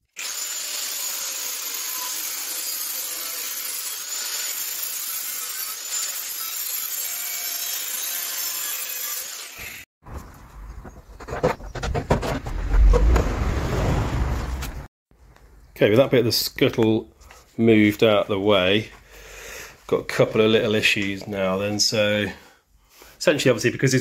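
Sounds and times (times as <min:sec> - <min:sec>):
angle grinder cutting metal: 0:00.0 - 0:09.9.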